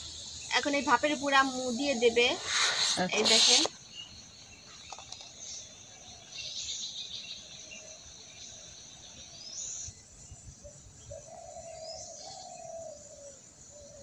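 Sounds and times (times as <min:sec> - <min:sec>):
high-pitched insect chirring: 0:00.0 - 0:04.1.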